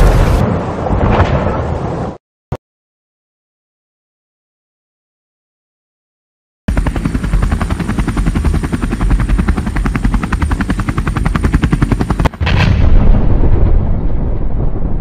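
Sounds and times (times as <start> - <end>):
explosion: 0.0 - 2.2, 12.4 - 15.0
high turbine whine: 6.7 - 12.5
helicopter rotor beats: 6.7 - 12.6.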